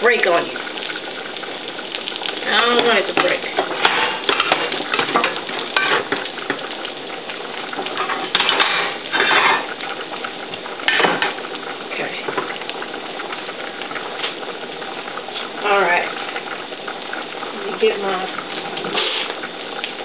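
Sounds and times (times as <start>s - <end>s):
patty sizzling in oil: 0.0s - 20.0s
pots and pans clattering: 2.5s - 6.7s, 7.7s - 9.9s, 10.8s - 11.5s.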